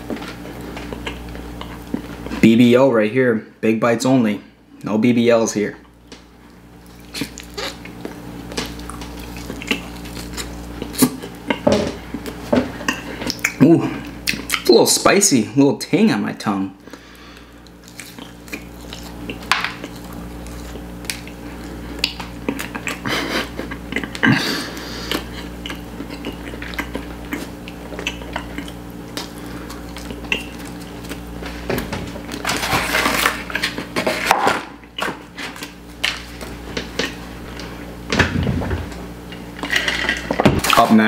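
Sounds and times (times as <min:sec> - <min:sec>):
chewing and mouth sounds: 0:00.0 - 0:02.4, 0:05.8 - 0:14.7, 0:17.4 - 0:31.6.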